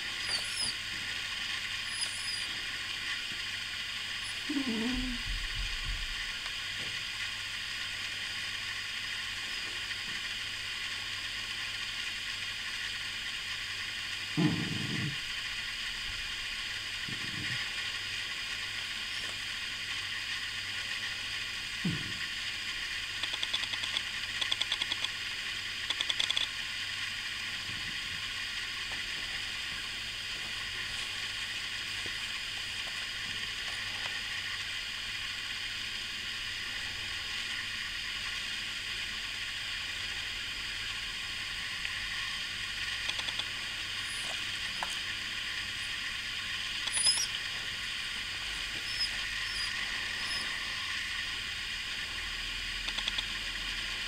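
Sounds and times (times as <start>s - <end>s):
steady hiss: 0.0s - 54.0s.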